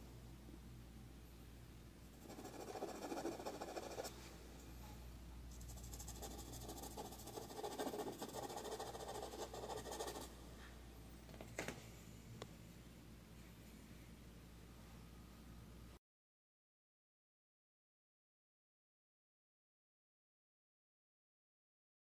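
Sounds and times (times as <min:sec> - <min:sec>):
pastel scratching on paper: 0:02.2 - 0:04.1, 0:05.6 - 0:10.3.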